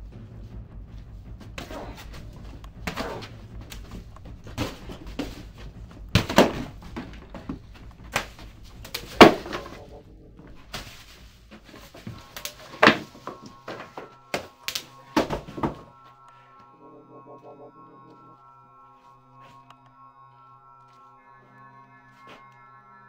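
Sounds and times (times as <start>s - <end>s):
low steady hum: 0.0s - 23.0s
knocks and thumps: 0.1s - 15.9s.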